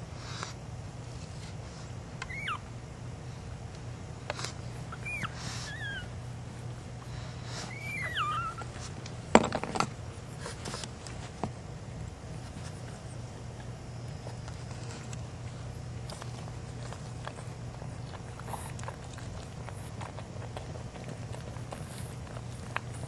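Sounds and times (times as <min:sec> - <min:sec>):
steady low hum: 0:00.0 - 0:23.0
puppy whimpering: 0:02.2 - 0:02.7, 0:04.7 - 0:06.2, 0:07.3 - 0:08.9
sharp knocks and rustles: 0:08.7 - 0:11.6.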